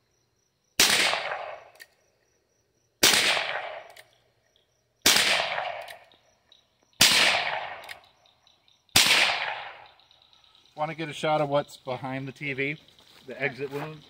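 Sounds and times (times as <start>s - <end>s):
revolver gunshots: 0.8s - 1.8s, 3.0s - 4.1s, 5.0s - 6.0s, 7.0s - 8.1s, 8.9s - 10.0s.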